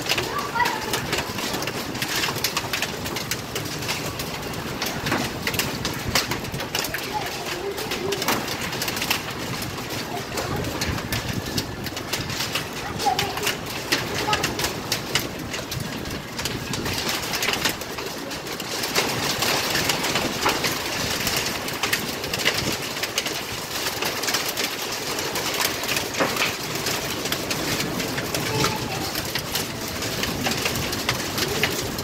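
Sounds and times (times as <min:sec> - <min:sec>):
rain falling on hard floor: 0:00.0 - 0:32.0.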